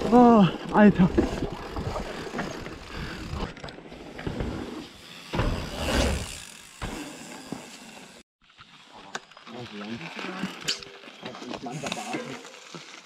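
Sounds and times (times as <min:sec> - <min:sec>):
bike rolling over wooden boardwalk: 0:00.0 - 0:13.0
bike tyres on dirt trail: 0:00.0 - 0:13.0
bike rattling and clicks: 0:00.1 - 0:08.2.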